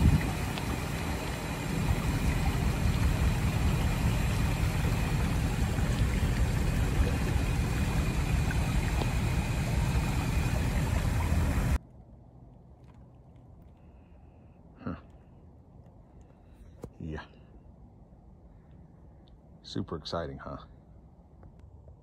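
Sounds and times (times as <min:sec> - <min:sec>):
water pouring into drain: 0:00.0 - 0:11.8.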